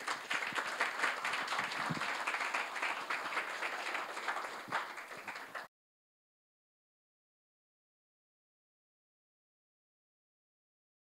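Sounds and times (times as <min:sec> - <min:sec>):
audience applauding: 0:00.0 - 0:05.7.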